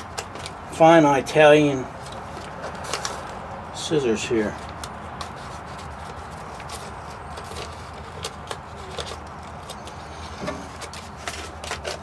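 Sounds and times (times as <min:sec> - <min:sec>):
paper crinkling: 0:02.0 - 0:03.5, 0:04.4 - 0:12.0.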